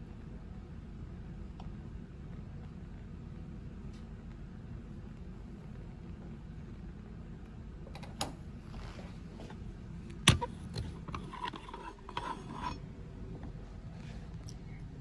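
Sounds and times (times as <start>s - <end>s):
low steady hum: 0.0s - 15.0s
rattling and scraping: 10.7s - 12.8s.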